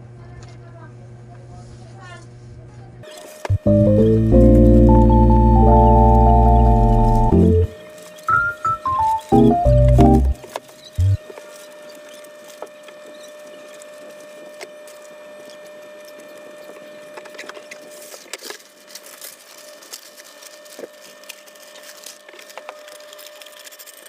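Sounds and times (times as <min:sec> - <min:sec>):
wallpaper rustling and crackling: 0:10.4 - 0:24.0.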